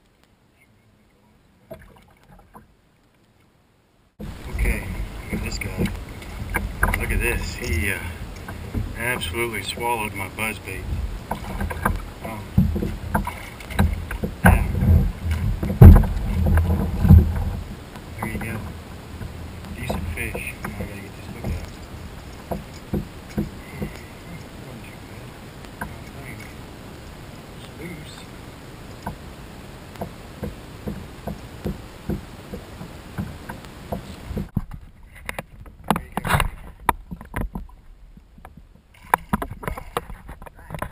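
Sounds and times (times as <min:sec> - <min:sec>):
water splashing: 0:00.0 - 0:03.6, 0:04.2 - 0:40.9
waves lapping against kayak hull: 0:00.0 - 0:40.9
thumps on plastic kayak hull: 0:10.8 - 0:17.6.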